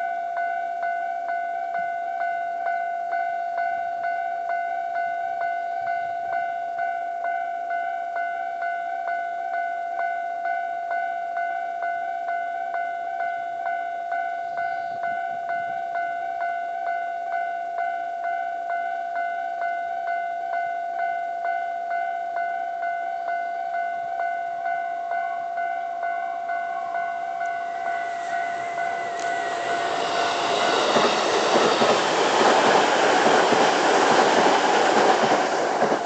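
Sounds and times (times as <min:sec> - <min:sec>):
warning bell ringing: 0:24.2 - 0:36.0
train passing at speed: 0:24.6 - 0:36.0.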